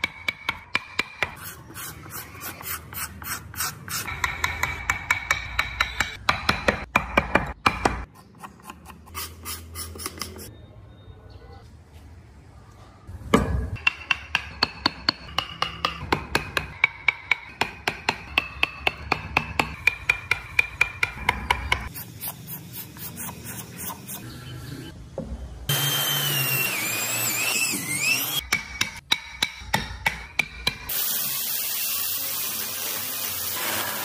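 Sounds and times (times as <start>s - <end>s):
electric drill boring into wood: 25.7s - 28.4s.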